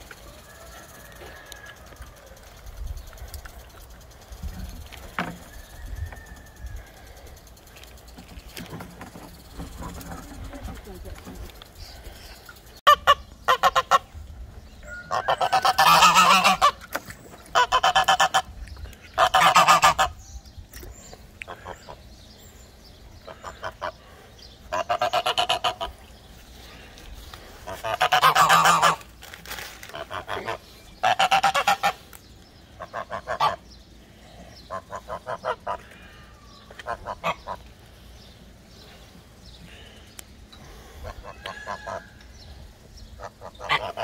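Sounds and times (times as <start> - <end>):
bird honking: 12.8 - 14.1, 14.9 - 16.9, 17.5 - 18.5, 19.2 - 20.2, 23.3 - 26.0, 27.6 - 29.1, 29.9 - 32.1, 32.8 - 33.6, 34.7 - 36.2, 36.8 - 37.6, 43.2 - 44.0.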